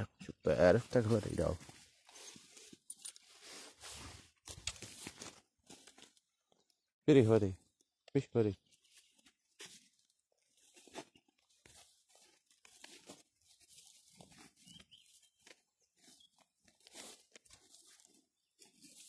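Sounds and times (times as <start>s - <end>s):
soft crunches: 8.8s - 19.0s.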